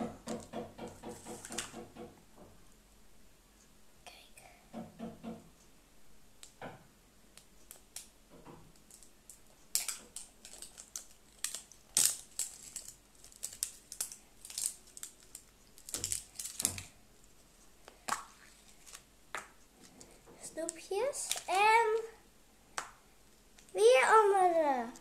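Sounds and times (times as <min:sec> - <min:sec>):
plastic egg crinkling and snapping: 0:08.7 - 0:17.0, 0:17.8 - 0:22.1.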